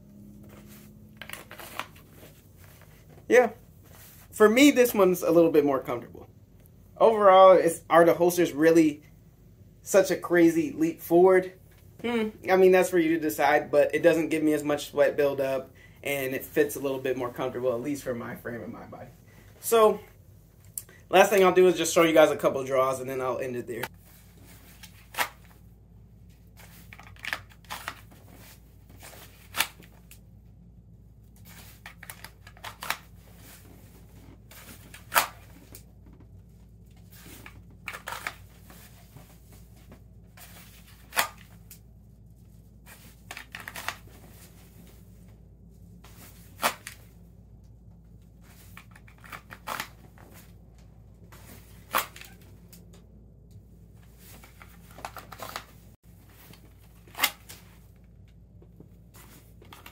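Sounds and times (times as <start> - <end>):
clothing rustling: 0.2 - 4.4.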